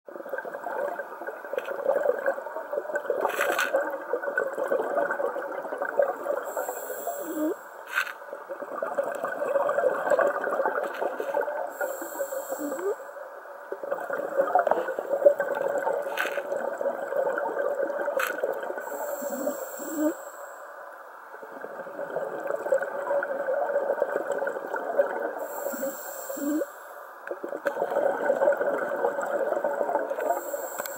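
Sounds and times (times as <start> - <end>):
exhaled air bubbling: 0.1 - 7.6, 8.2 - 20.2, 21.3 - 30.9
diver inhaling through regulator: 6.5 - 7.8, 11.7 - 13.1, 18.8 - 20.7, 25.4 - 27.1, 30.2 - 30.9.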